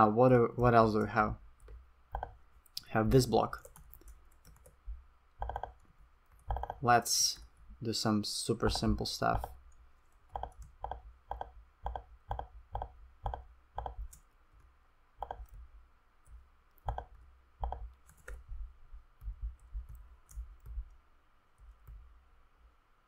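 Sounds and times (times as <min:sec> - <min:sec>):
computer mouse clicks: 0:00.6 - 0:02.9, 0:03.6 - 0:04.8, 0:05.4 - 0:06.8, 0:08.7 - 0:14.3, 0:15.2 - 0:18.5, 0:19.2 - 0:21.0
keyboard clicks: 0:00.6 - 0:02.9, 0:03.6 - 0:04.8, 0:05.4 - 0:06.8, 0:08.6 - 0:14.3, 0:15.2 - 0:18.5, 0:19.2 - 0:21.0.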